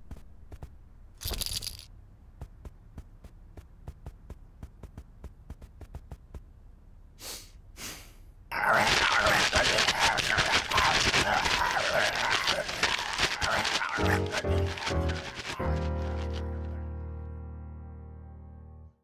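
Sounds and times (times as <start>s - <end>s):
breathy puffs: 7.2s - 16.4s.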